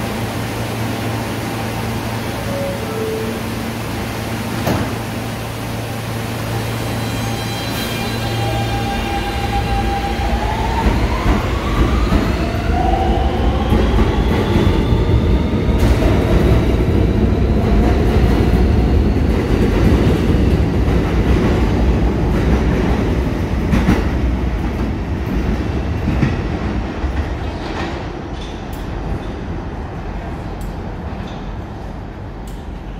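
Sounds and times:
subway cars rumbling past: 0:00.0 - 0:32.9.

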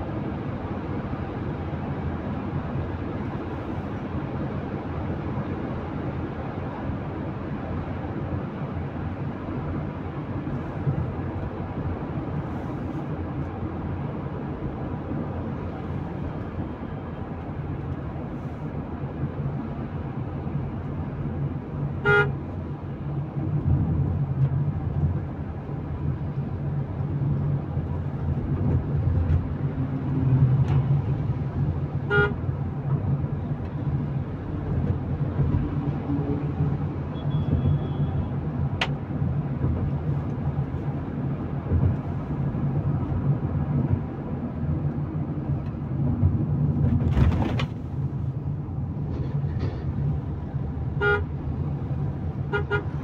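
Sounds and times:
road and engine noise in car: 0:00.0 - 0:53.0
vehicle horn toots: 0:22.0 - 0:22.4, 0:32.1 - 0:32.4, 0:37.1 - 0:38.2, 0:51.0 - 0:51.3, 0:52.5 - 0:53.0.

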